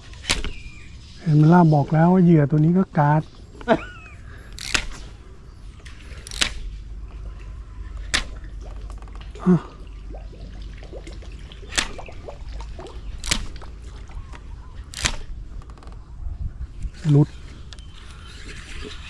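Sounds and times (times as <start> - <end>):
lure splashing on water: 4.4 - 15.4
deep plop in water: 8.1 - 14.2.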